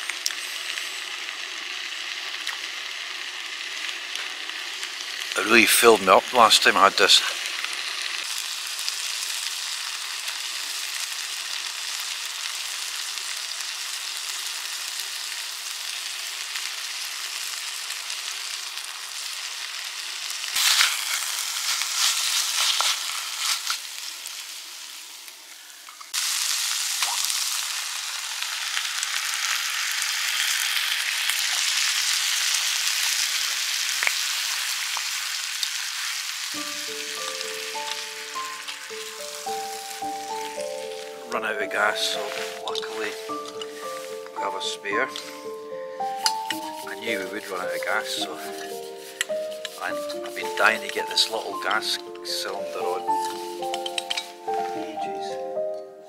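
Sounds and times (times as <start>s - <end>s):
food sizzling in a frying pan: 0.0s - 55.6s
music: 36.6s - 56.0s
wooden spatula scraping a pan: 42.0s - 44.2s, 46.2s - 51.9s.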